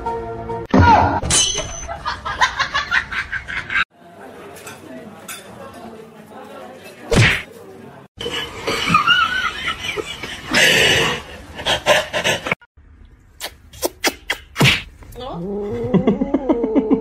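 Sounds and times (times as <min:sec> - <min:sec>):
person laughing: 0:15.7 - 0:17.0.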